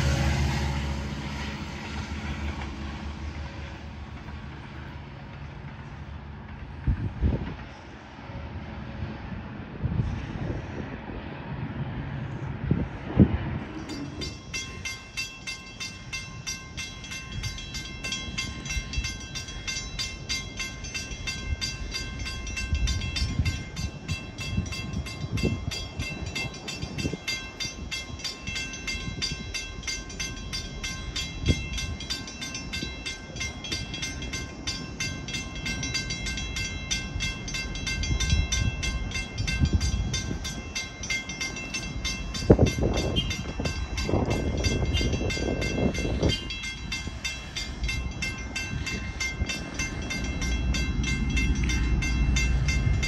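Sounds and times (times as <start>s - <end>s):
low rumble of train: 0.0s - 53.0s
crossing bells ringing: 13.6s - 53.0s.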